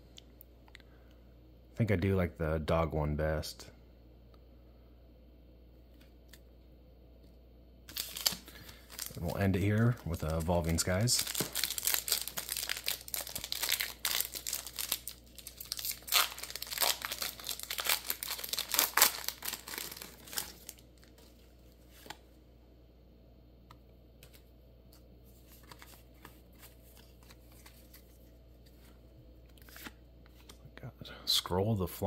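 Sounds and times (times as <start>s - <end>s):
foil wrapper tearing and crinkling: 7.9s - 21.1s.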